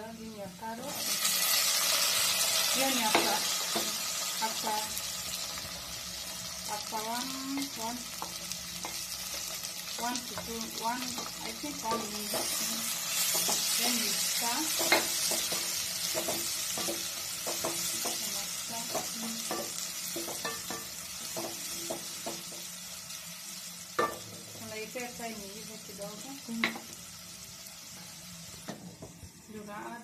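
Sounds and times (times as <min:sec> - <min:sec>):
vegetables sizzling in oil: 0:00.0 - 0:30.0.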